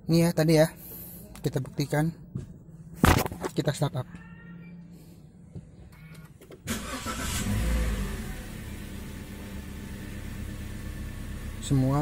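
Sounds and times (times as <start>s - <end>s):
car engine starting and idling: 5.9s - 12.0s.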